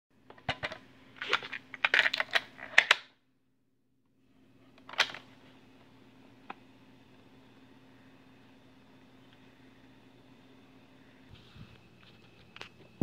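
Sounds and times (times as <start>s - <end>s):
tape hiss: 5.1s - 13.0s.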